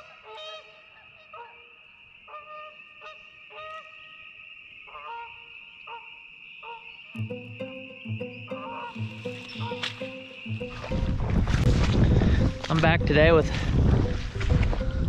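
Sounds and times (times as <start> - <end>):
geese honking: 0.0 - 11.4
music with low beat: 7.2 - 15.0.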